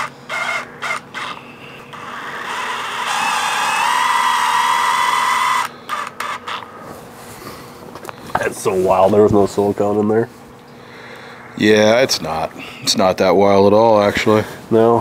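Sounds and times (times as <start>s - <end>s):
cordless drill motor whining: 0.0s - 6.7s.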